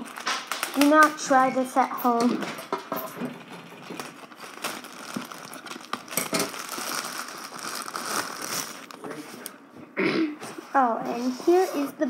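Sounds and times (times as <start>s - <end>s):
scissors cutting plastic: 0.0s - 1.5s
plastic bag crinkling: 0.0s - 9.6s.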